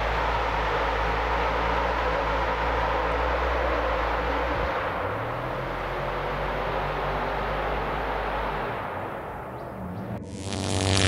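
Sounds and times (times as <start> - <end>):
vehicle engine and drive noise: 0.0 - 11.0.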